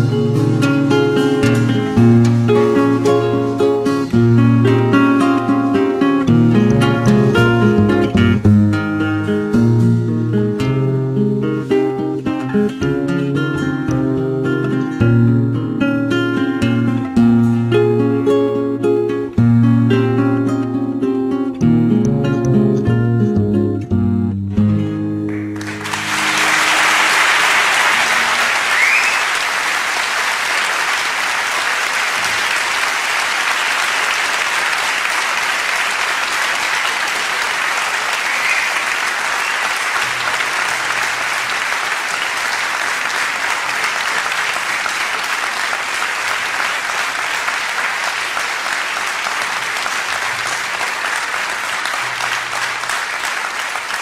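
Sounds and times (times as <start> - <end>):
acoustic guitar chord: 0.0 - 26.7
audience applauding: 25.2 - 54.0.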